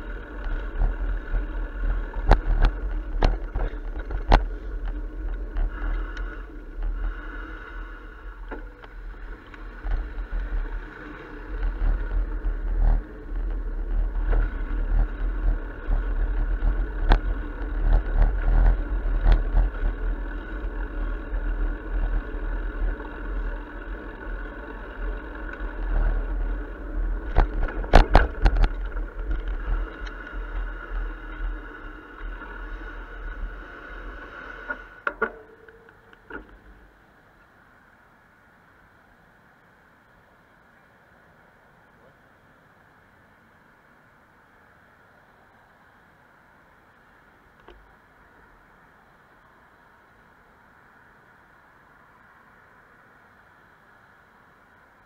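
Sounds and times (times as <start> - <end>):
wind rumble on microphone: 0.0 - 35.1
street traffic: 0.0 - 55.0.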